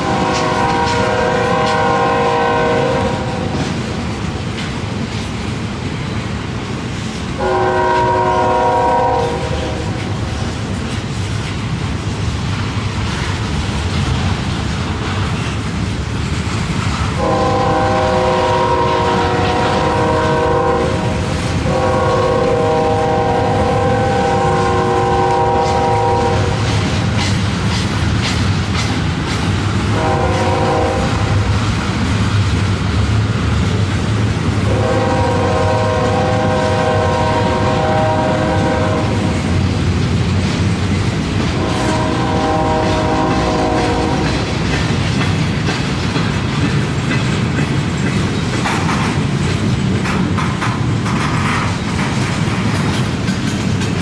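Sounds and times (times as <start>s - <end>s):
locomotive air horn blasts: 0.0s - 3.6s, 7.4s - 10.2s, 17.2s - 26.7s, 29.9s - 31.5s, 34.7s - 39.4s, 41.6s - 44.4s
train rumble and clickety-clack: 0.0s - 54.0s.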